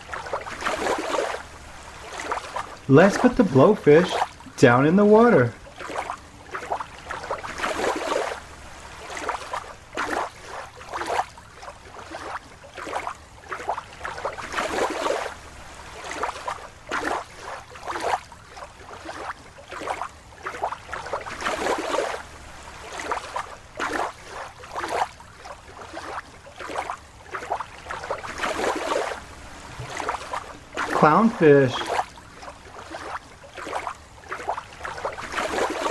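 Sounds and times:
water sloshing and splashing: 0.0s - 35.9s.

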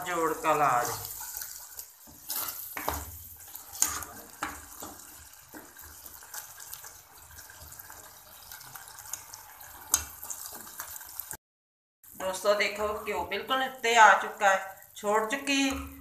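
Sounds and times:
curry sizzling: 0.0s - 11.4s, 12.0s - 16.0s
metal ladle scraping a pot: 0.4s - 6.4s.

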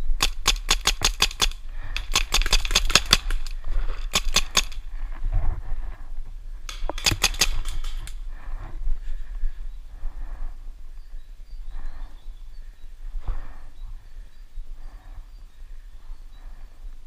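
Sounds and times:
paintball marker firing: 0.1s - 3.5s, 4.1s - 4.8s, 6.7s - 8.2s.

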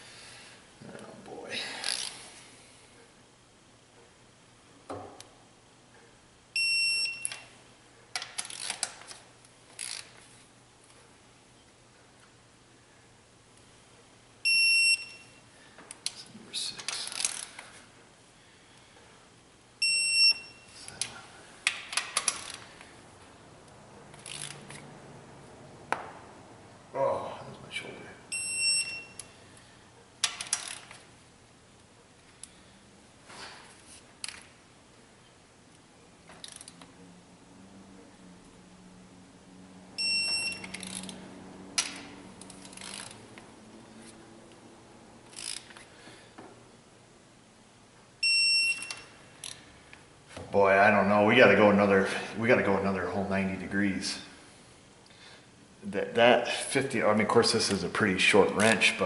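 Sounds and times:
torque wrench beep: 6.6s - 7.5s, 14.4s - 15.4s, 19.8s - 20.8s, 28.3s - 29.3s, 40.0s - 41.1s, 48.2s - 49.2s
wrench ratchet clicks: 9.8s - 10.1s, 24.2s - 24.8s, 30.2s - 31.0s, 40.5s - 41.2s, 41.8s - 43.2s, 45.3s - 45.7s.

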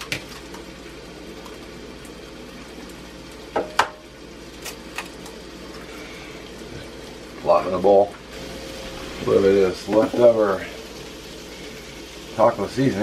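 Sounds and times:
steady low hum: 8.2s - 12.6s.

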